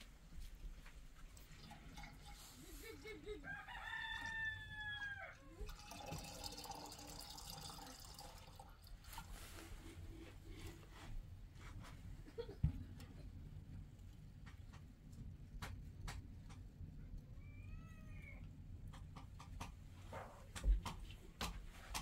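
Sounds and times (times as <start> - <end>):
rooster crowing: 3.4 - 5.6.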